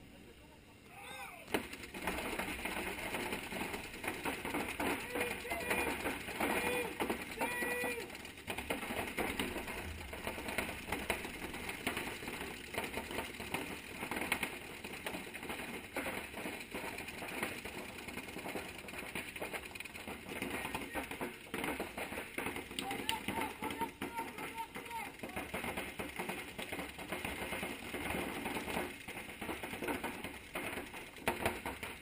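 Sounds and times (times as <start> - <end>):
paintball markers firing: 20.3 - 31.6.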